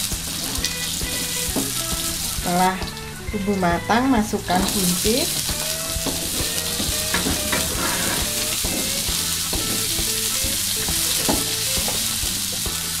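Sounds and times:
green beans sizzling in oil: 0.0s - 13.0s
spatula scraping a wok: 4.4s - 13.0s.

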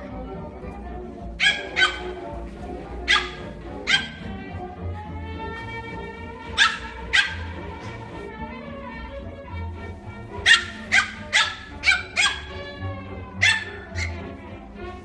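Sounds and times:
background music with held notes: 0.0s - 15.0s
dog barking: 1.4s - 2.3s, 2.9s - 4.4s, 6.4s - 8.2s, 10.4s - 12.8s, 13.4s - 14.3s.

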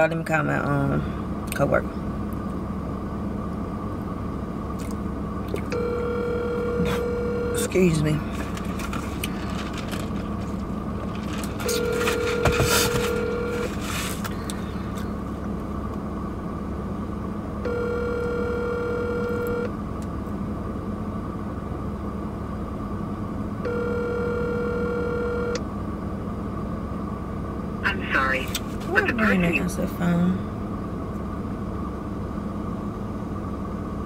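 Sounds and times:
steady car cabin hum: 0.0s - 34.0s
telephone ringback tone: 5.7s - 7.9s, 11.6s - 13.8s, 17.6s - 19.7s, 23.6s - 25.6s.

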